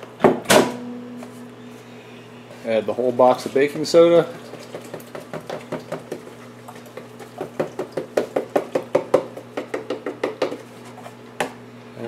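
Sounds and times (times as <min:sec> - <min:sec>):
knocks and taps on plastic pail: 0:04.5 - 0:10.7.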